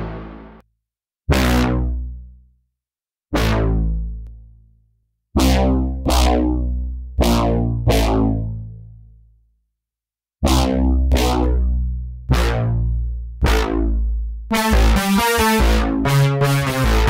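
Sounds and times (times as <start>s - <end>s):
synthesizer lead notes: 0.0s - 0.6s, 13.5s - 17.0s.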